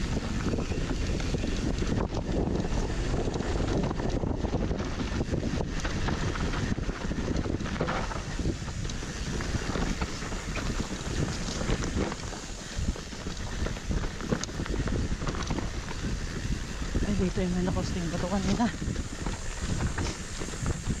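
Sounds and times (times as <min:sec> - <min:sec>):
bike rattling over rough ground: 0:00.0 - 0:21.0
wind on microphone: 0:00.0 - 0:21.0
tyres crunching over dirt: 0:05.2 - 0:21.0.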